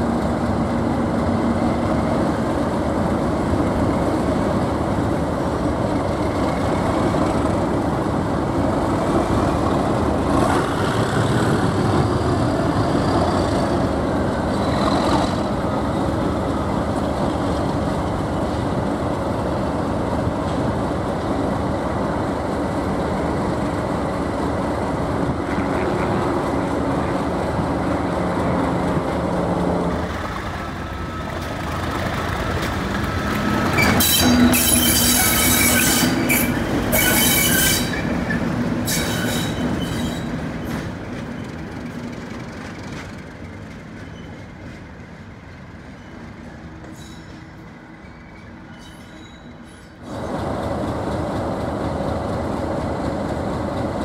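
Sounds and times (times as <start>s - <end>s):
diesel locomotive engines running: 0.0s - 54.0s
high squeals: 33.7s - 40.4s.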